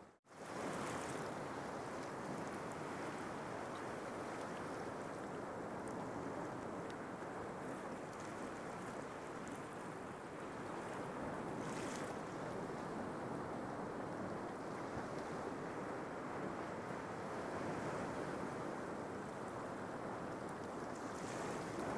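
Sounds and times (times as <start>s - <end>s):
sea surf washing onto beach: 0.4s - 21.9s.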